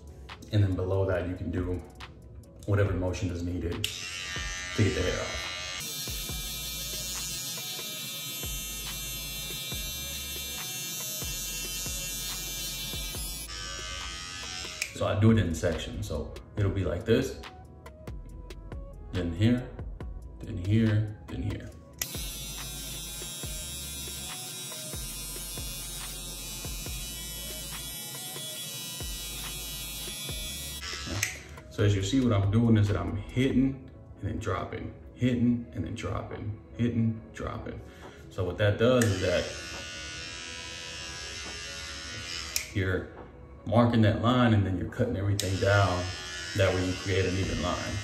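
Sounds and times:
trimmer blade clicking through hair: 0:03.8 - 0:15.0, 0:22.0 - 0:31.6, 0:39.0 - 0:42.8, 0:45.4 - 0:48.0
beard trimmer buzzing: 0:03.8 - 0:15.1, 0:22.0 - 0:31.7, 0:39.0 - 0:42.8, 0:45.4 - 0:48.0.

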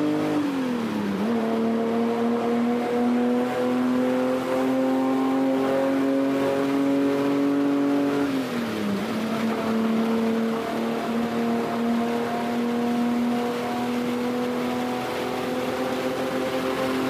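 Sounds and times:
race car engine running: 0:00.0 - 0:17.0.

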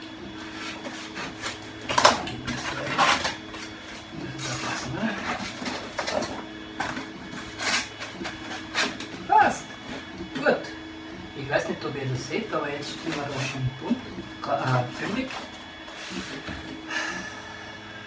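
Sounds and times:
foam boards scraping and knocking: 0:14.7 - 0:16.8.

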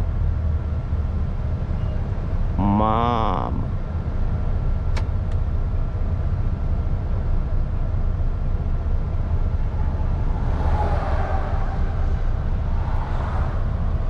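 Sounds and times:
diesel truck engine rumble: 0:00.0 - 0:14.0
road noise: 0:00.0 - 0:14.0
higher rushing noise: 0:09.2 - 0:14.0.

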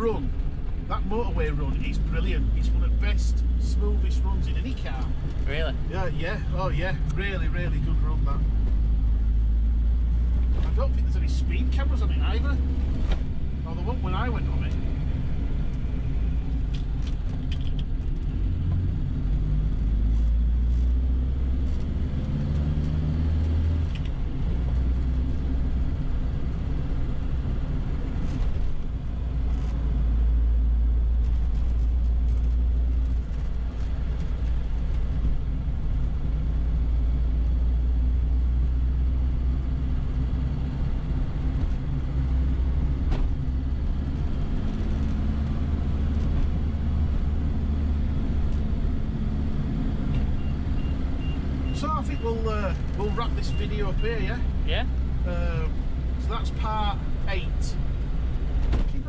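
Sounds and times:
car engine drone: 0:00.0 - 0:59.0
road rumble: 0:00.0 - 0:59.0.

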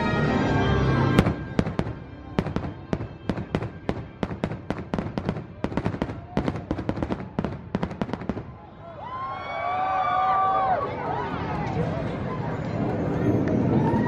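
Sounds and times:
music: 0:00.0 - 0:07.1
firework bangs and pops: 0:01.2 - 0:08.6.

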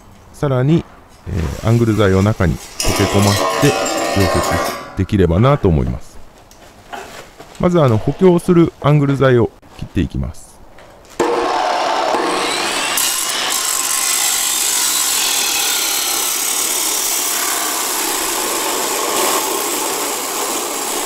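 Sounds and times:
cut-off saw grinding steel: 0:02.8 - 0:05.0, 0:11.2 - 0:21.0.

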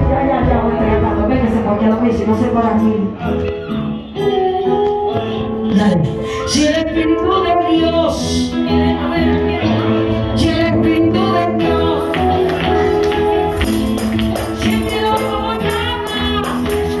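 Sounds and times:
woman singing slow melody: 0:05.7 - 0:13.5, 0:14.5 - 0:17.0.

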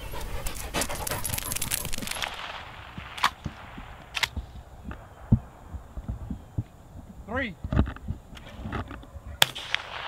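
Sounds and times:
distant gunshots: 0:09.4 - 0:10.0.

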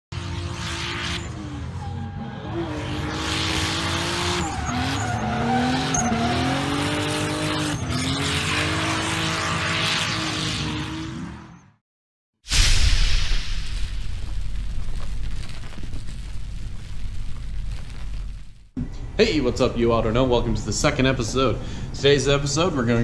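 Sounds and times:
car engine revving: 0:00.1 - 0:11.6
tyres squealing and skidding: 0:00.7 - 0:11.6.

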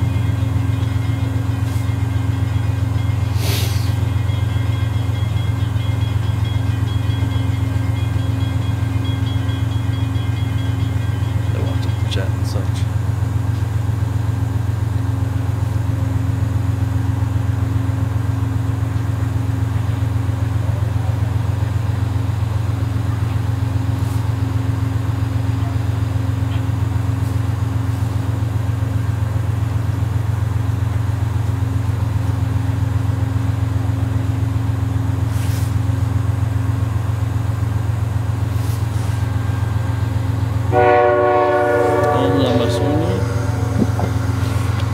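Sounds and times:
diesel locomotive idling: 0:00.0 - 0:44.9.

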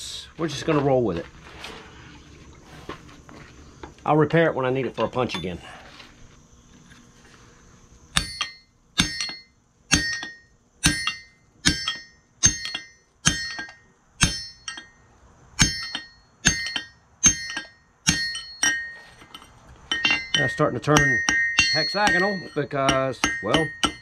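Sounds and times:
hammer striking metal punch: 0:08.1 - 0:15.0, 0:15.6 - 0:19.0, 0:19.9 - 0:24.0.

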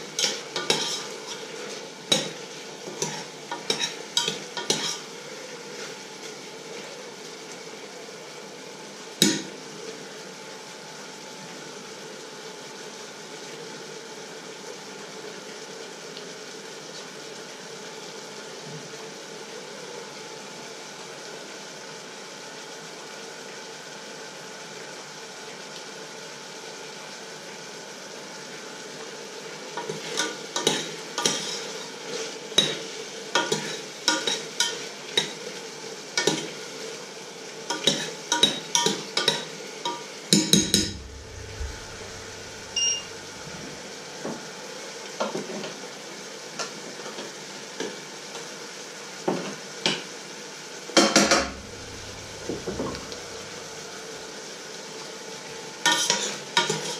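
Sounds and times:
metal spoon scraping saucepan: 0:00.2 - 0:01.4, 0:03.0 - 0:05.0, 0:29.8 - 0:31.7, 0:55.9 - 0:56.9
steady low hiss: 0:40.7 - 0:44.0, 0:51.5 - 0:54.4.

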